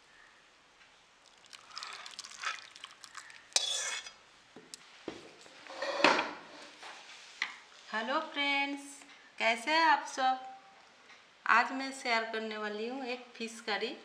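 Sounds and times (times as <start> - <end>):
wet slop of gravy: 1.2 - 4.2
spoon scraping a steel pot: 3.6 - 4.2.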